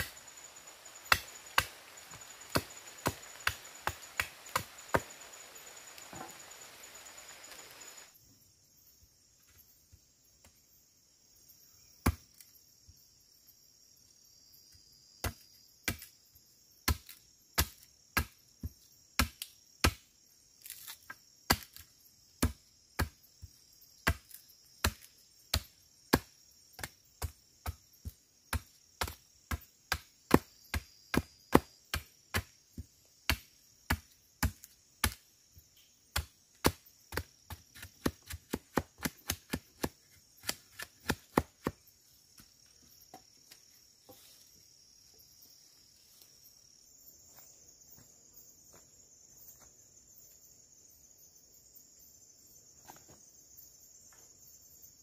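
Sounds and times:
high-pitched insect chorus: 0.0 - 55.0
blade chopping wood: 1.0 - 5.4, 24.0 - 32.5, 33.3 - 35.2, 36.1 - 41.8.

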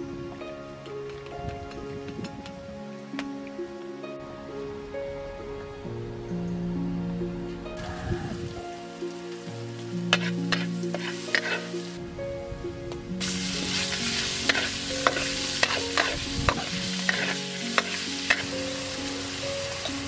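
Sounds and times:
meat sizzling in hot oil: 8.8 - 12.0, 13.2 - 20.0
spatula scraping a steel wok: 10.1 - 11.9, 13.2 - 18.5.

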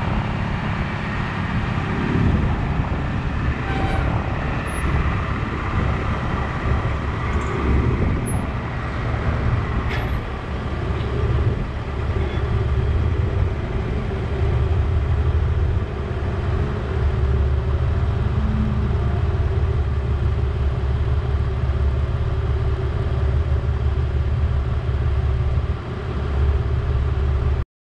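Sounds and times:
vehicle engine rumbling: 0.0 - 27.6.

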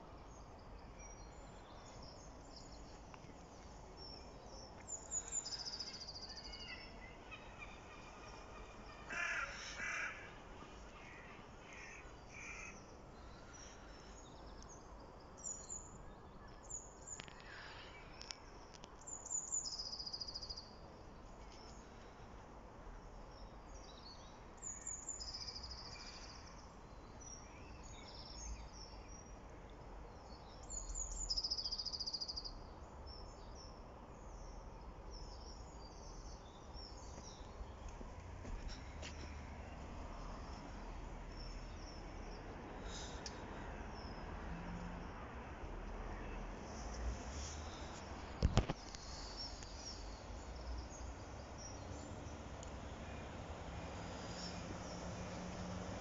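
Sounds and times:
birds chirping: 46.0 - 53.6.

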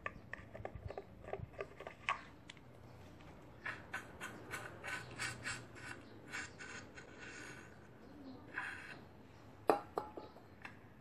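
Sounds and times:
plastic syringe clicking and scraping: 0.0 - 7.4.

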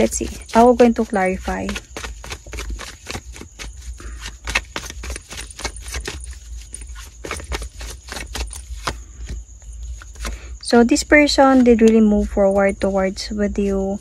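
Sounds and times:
cards shuffling: 0.0 - 10.4.

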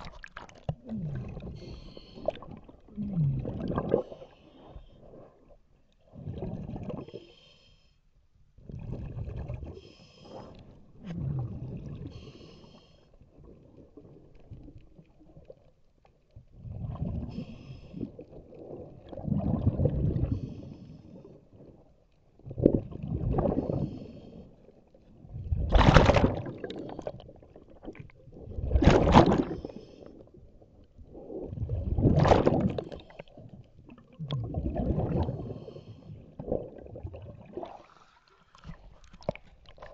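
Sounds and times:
exhaled bubbles rushing: 0.0 - 4.4, 6.1 - 7.1, 8.6 - 9.8, 11.0 - 12.2, 16.5 - 20.5, 22.4 - 24.0, 25.2 - 29.7, 31.0 - 39.9
regulator hissing inhale: 9.8 - 10.6, 12.1 - 13.2, 20.3 - 21.1, 23.7 - 24.6.

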